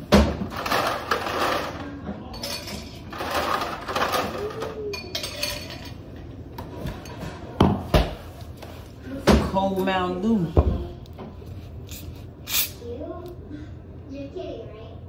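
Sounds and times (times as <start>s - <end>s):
glass clinking: 4.8s - 6.0s.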